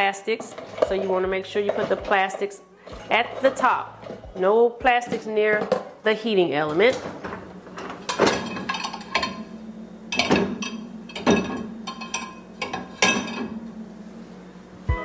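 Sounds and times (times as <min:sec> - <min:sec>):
background music: 0:00.5 - 0:09.6, 0:14.7 - 0:15.0
plates clinking on wire rack: 0:06.6 - 0:09.5, 0:10.1 - 0:13.6.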